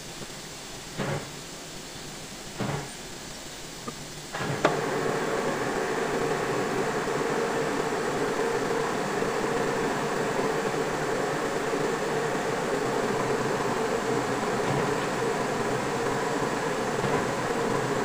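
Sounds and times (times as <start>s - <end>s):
metal lathe humming: 4.4s - 18.0s.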